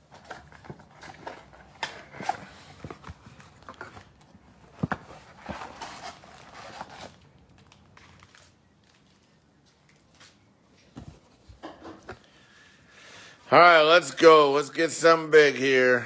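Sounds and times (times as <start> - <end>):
foil packs rustling and crinkling: 0.0 - 10.4.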